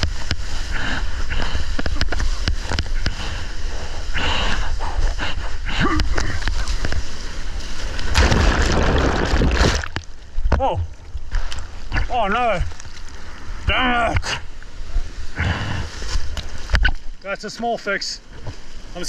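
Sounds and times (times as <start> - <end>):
water splashing: 5.8 - 13.6.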